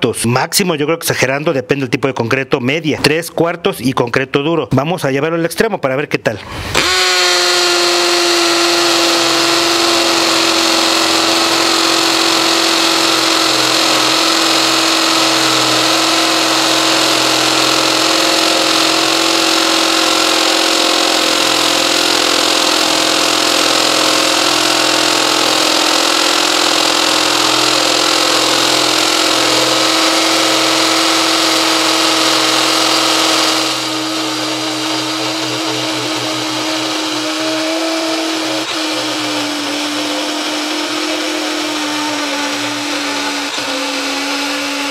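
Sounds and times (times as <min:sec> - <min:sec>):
hammer drill boring into concrete: 0:06.6 - 0:44.9.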